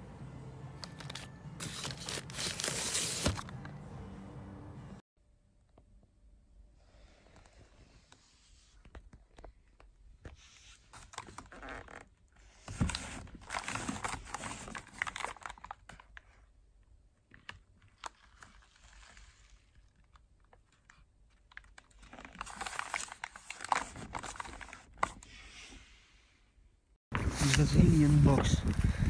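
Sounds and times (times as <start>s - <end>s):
foil and paper crinkling: 0.8s - 3.4s, 20.9s - 25.0s.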